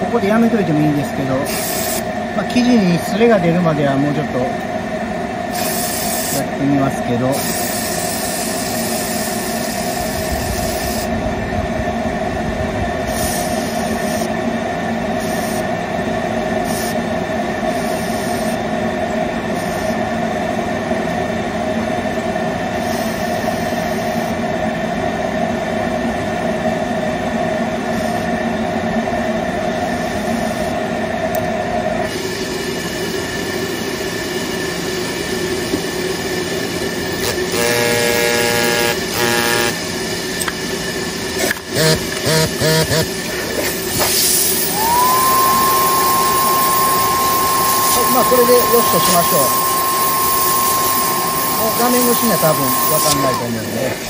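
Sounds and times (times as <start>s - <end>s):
steam hissing: 0.0s - 3.0s, 5.5s - 11.2s, 13.0s - 14.4s, 15.1s - 15.7s, 17.6s - 18.6s, 32.0s - 54.0s
held tone: 44.5s - 54.0s
brief pulsing tone: 44.8s - 53.6s.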